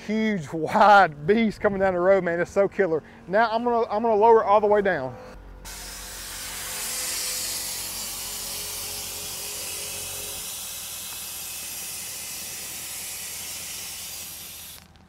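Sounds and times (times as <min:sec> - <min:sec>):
low hum: 0:00.0 - 0:15.0
air suspension hissing: 0:05.6 - 0:15.0.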